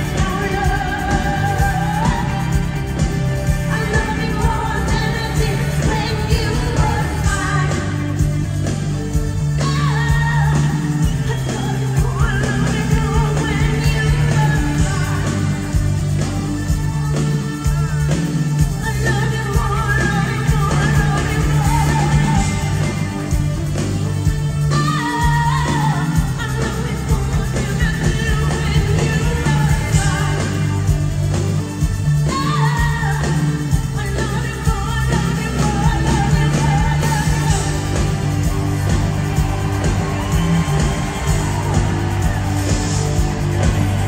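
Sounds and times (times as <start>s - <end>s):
heavy bass: 0.0s - 44.0s
live pop rock band: 0.0s - 44.0s
woman singing: 0.0s - 44.0s
drum beat: 36.6s - 44.0s.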